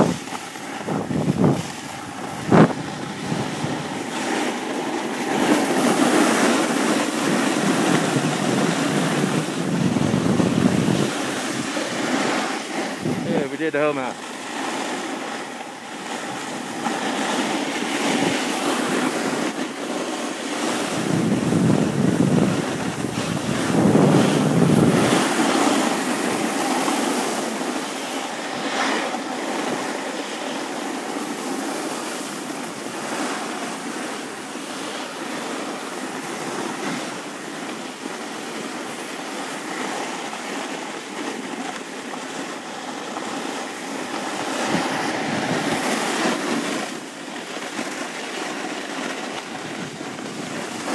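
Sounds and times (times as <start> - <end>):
wind buffeting microphone: 0.0 - 19.7, 20.5 - 28.2, 43.4 - 47.1, 49.1 - 50.9
snowboard scraping over snow: 0.0 - 50.9.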